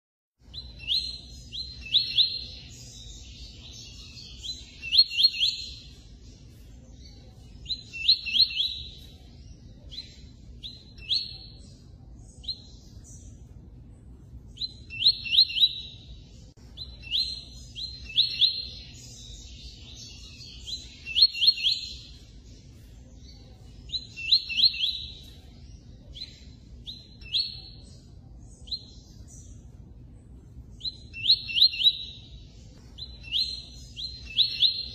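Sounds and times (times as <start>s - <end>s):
bird singing high clear notes: 0.4s - 13.4s, 14.5s - 29.6s, 30.7s - 34.9s
low steady background hum: 0.4s - 34.9s.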